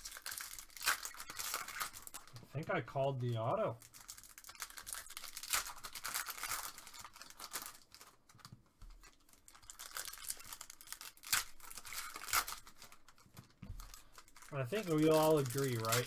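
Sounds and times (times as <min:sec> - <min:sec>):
foil wrapper tearing and crinkling: 0:00.0 - 0:16.0.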